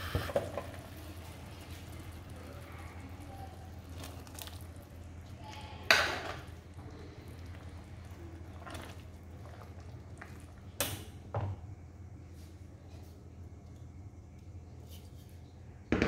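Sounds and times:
steady low hum: 0.0 - 15.9
wooden spoon stirring sauce: 1.0 - 10.6.

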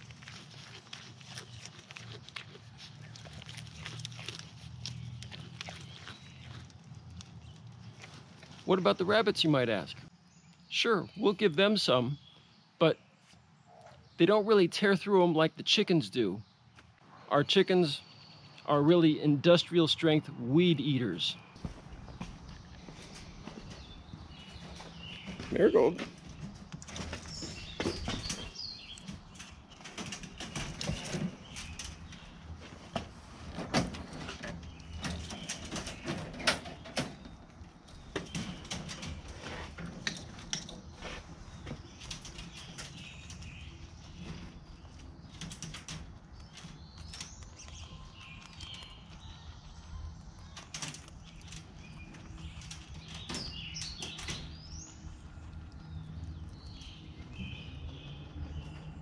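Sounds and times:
leafy stems rustling: 0.0 - 9.0
rabbit chewing weeds: 0.0 - 9.6, 37.5 - 59.0
bird chirps: 46.3 - 59.0.

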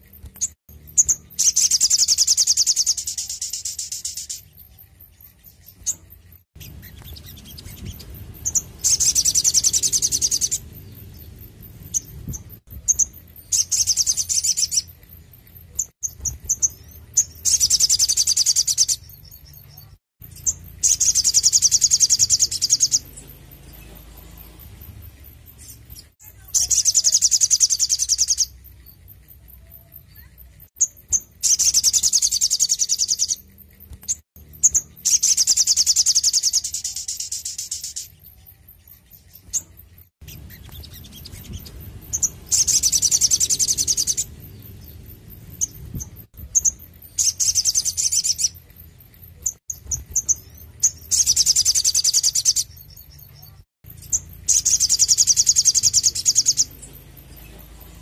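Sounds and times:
bird rapid high trills: 5.5 - 15.0, 39.4 - 48.6, 49.5 - 58.0.

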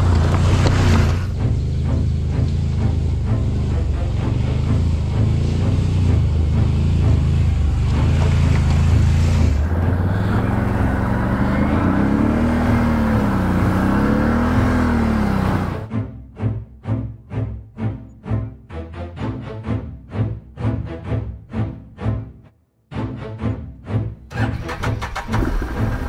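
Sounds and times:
atv engine revving: 0.0 - 15.9, 24.3 - 26.0.

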